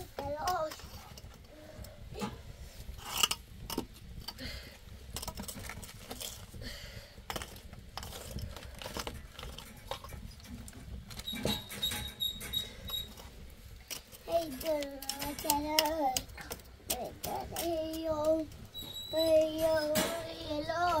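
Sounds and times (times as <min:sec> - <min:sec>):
fire pops and snaps: 0:00.0 - 0:11.8
low steady rumble: 0:00.0 - 0:21.0
wood fire crackling: 0:00.0 - 0:21.0.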